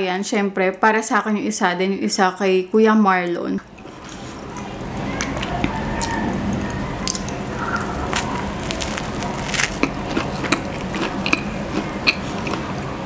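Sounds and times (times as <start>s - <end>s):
person chewing: 4.1s - 12.8s.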